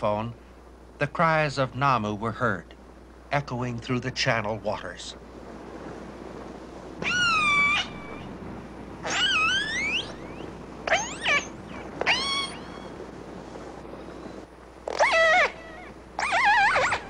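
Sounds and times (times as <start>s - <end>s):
steady hiss: 0.0s - 7.0s
killer whale squealing calls: 7.0s - 8.4s, 9.0s - 13.0s, 13.9s - 17.0s.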